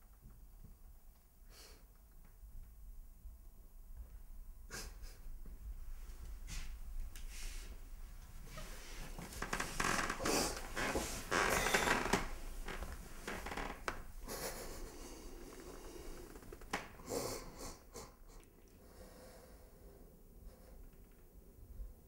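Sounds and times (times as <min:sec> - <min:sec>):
close breathing and sniffing: 0:06.4 - 0:07.8, 0:09.8 - 0:11.8, 0:14.2 - 0:21.0
clothing rustling: 0:08.2 - 0:14.2.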